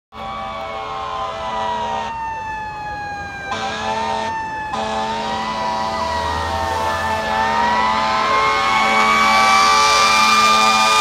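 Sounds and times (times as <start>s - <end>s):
air horn blasts: 0.1s - 2.2s, 3.5s - 11.0s
siren wailing: 0.1s - 11.0s.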